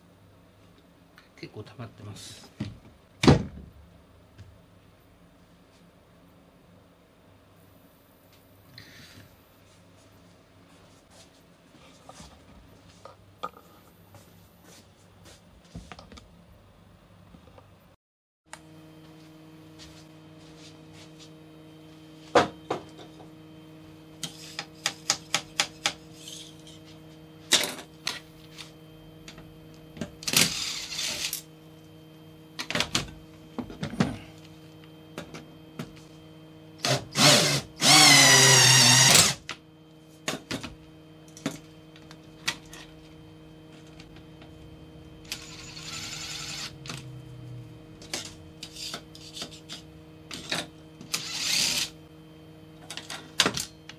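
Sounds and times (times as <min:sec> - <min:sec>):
cordless drill running: 0:30.2 - 0:31.4, 0:36.8 - 0:39.4, 0:45.2 - 0:47.0, 0:51.1 - 0:52.0.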